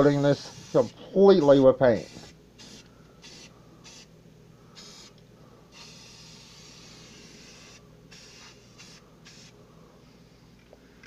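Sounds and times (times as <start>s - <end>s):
aerosol spray paint hissing: 0.2s - 4.1s, 4.8s - 9.6s.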